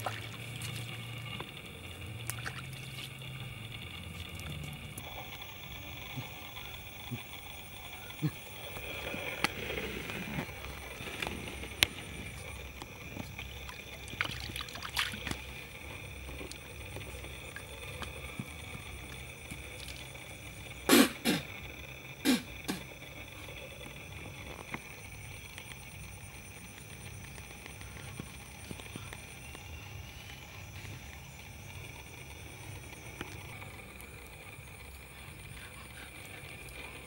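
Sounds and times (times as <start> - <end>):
insects droning: 0.0 - 37.0.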